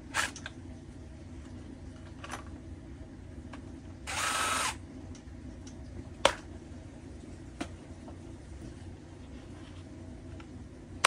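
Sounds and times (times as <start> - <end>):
power drill running: 4.1 - 4.8.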